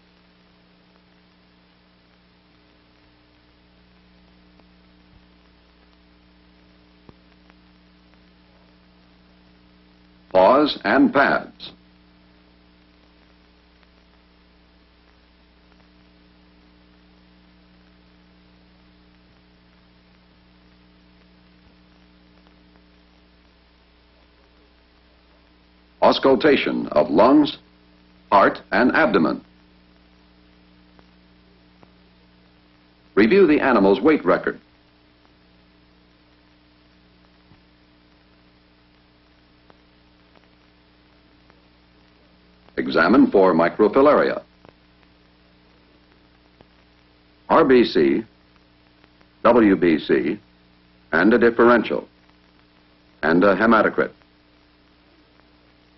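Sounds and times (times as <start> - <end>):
faint ticks: 0.0 - 10.4, 11.7 - 26.0, 29.4 - 33.2, 34.6 - 42.8, 44.4 - 47.5, 48.3 - 49.4
electrical hum with hiss: 0.0 - 55.9
faint clicks: 12.7 - 25.8.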